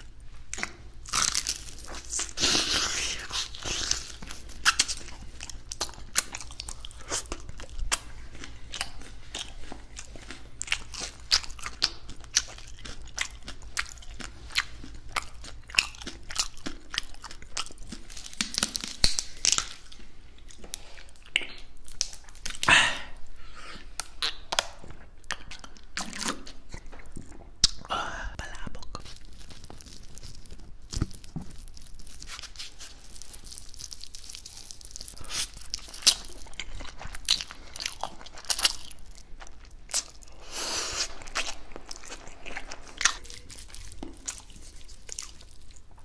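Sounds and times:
crunchy chewing: 0.1s - 22.8s, 28.6s - 46.0s.

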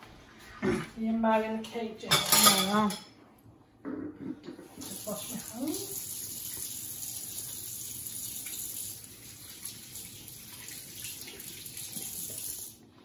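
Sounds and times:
tap water running into sink: 4.8s - 12.8s.

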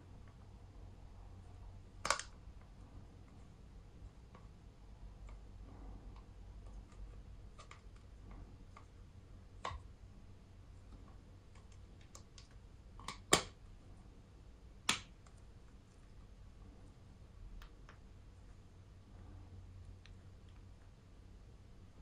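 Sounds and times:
plastic phone case snapping: 2.0s - 2.3s.

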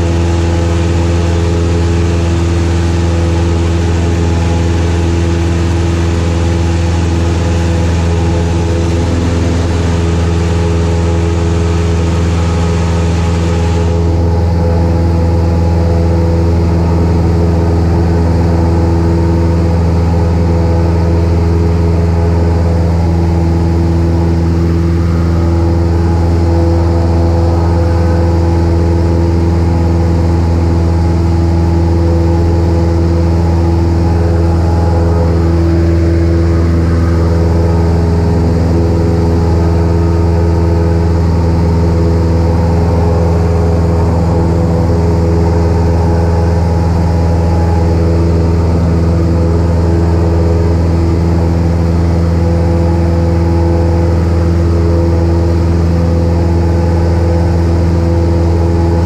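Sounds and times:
aircraft engine drone: 0.0s - 59.0s.

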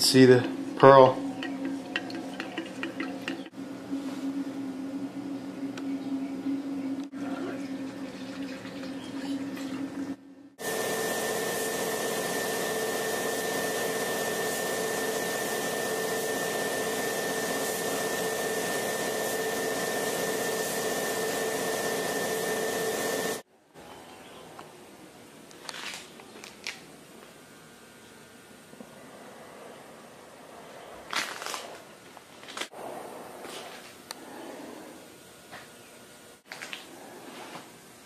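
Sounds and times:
paint spray gun hissing: 10.6s - 23.4s.

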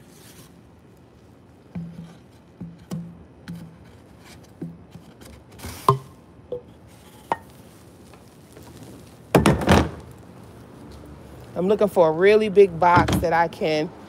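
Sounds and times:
cardboard tubes knocking: 1.7s - 6.7s, 9.3s - 10.1s.

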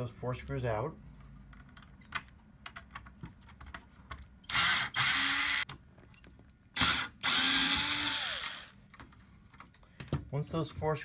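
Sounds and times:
power screwdriver motor running: 4.5s - 5.6s, 6.8s - 8.8s.

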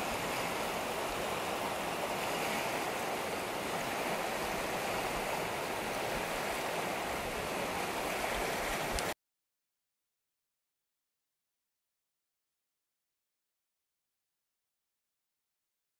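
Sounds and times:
river water rushing over rocks: 0.0s - 9.2s.

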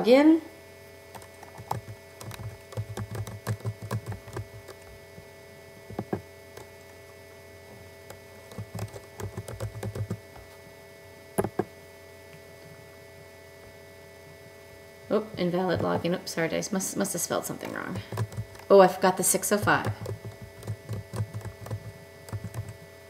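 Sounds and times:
typing on computer keyboard: 1.1s - 5.0s, 5.9s - 6.7s, 8.1s - 10.2s, 18.0s - 18.7s, 19.5s - 22.8s.

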